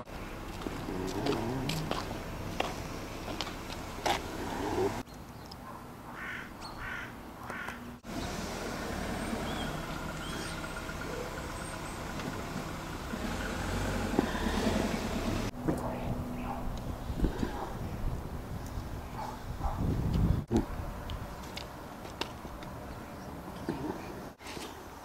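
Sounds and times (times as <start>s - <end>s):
vehicle passing by: 0.0s - 5.0s, 8.0s - 19.8s.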